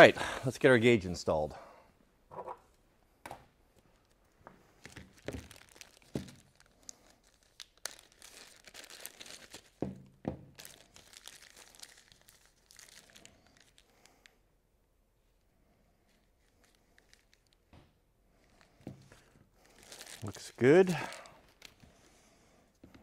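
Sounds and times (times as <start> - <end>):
plastic bag crinkling: 4.8 - 14.3, 16.1 - 17.7, 18.4 - 22.9.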